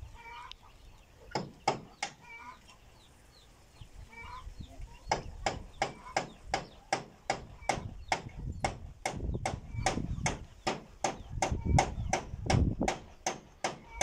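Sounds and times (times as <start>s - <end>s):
hens clucking: 0.0s - 8.6s, 9.4s - 12.4s, 13.1s - 14.0s
hammer driving nails: 5.1s - 14.0s.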